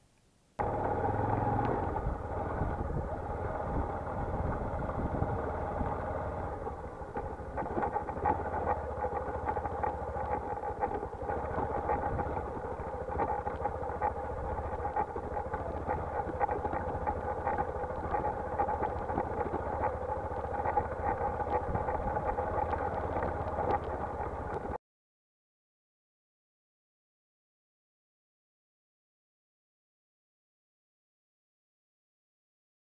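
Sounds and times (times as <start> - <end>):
motorcycle engine running: 0.6 - 24.8.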